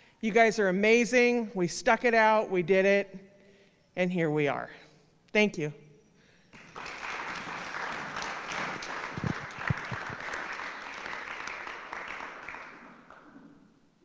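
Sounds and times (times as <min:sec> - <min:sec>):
audience applauding: 0:06.5 - 0:13.5.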